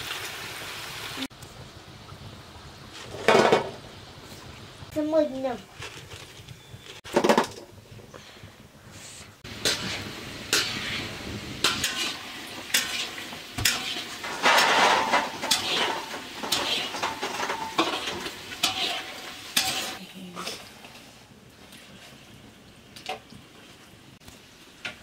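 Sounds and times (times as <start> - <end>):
hot oil sizzling in a wok: 0.0 - 5.8, 7.7 - 20.2
metal trays and dishes clinking: 11.6 - 20.6.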